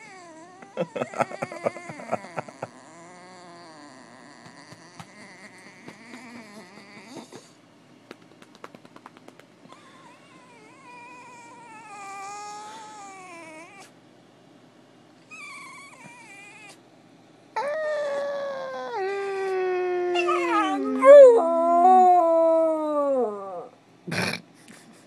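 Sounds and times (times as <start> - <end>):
puppy howling: 0.0 - 7.4, 9.8 - 13.9, 15.3 - 16.8, 17.6 - 23.8.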